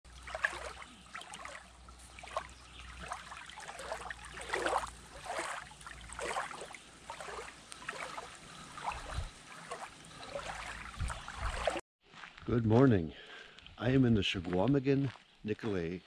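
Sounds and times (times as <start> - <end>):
small waves lapping shore: 0.1 - 11.8.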